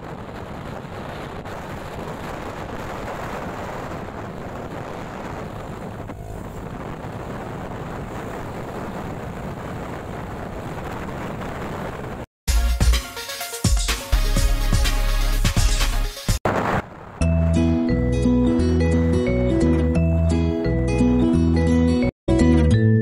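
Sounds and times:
road noise: 0.0 - 12.3
wind buffeting microphone: 0.0 - 12.3.

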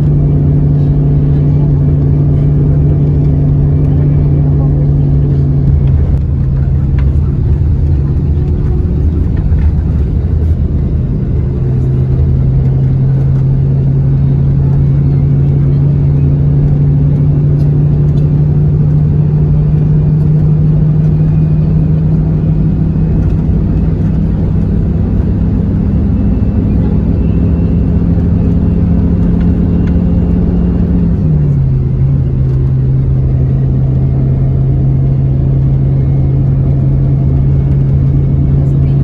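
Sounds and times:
bus engine drone: 0.0 - 39.0
road rumble: 0.0 - 39.0.

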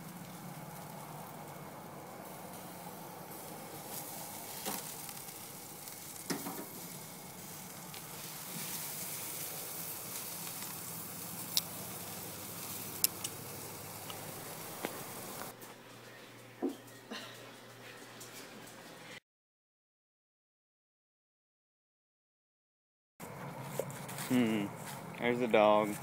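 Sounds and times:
meat sizzling on grill: 0.0 - 15.5
sharp pops and clicks: 11.5 - 11.8, 13.0 - 15.5.

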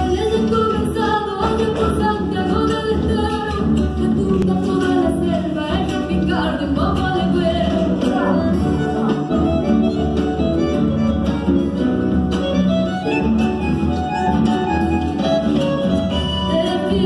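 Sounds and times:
person singing: 0.0 - 9.4
instrumental accompaniment with bass: 0.0 - 17.0.

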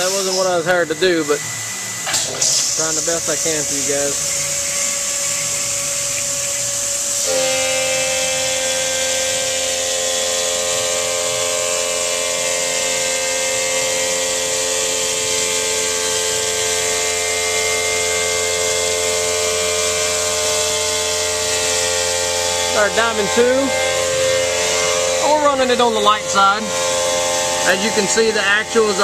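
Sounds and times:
stone router spindle whine: 0.0 - 29.0
water spray hiss: 2.0 - 7.4.

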